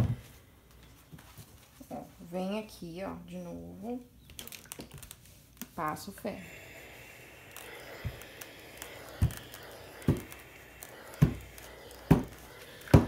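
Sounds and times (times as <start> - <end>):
steam iron thumping on fabric: 12.0 - 13.0.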